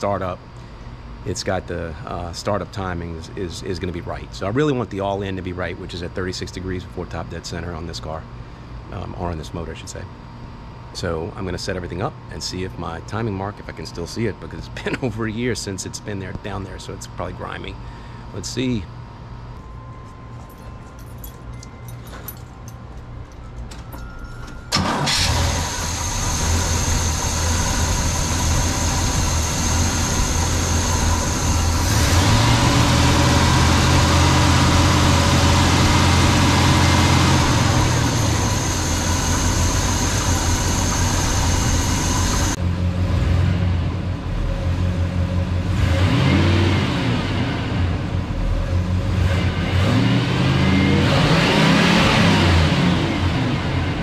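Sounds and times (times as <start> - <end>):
car engine starting and revving: 24.7 - 54.0.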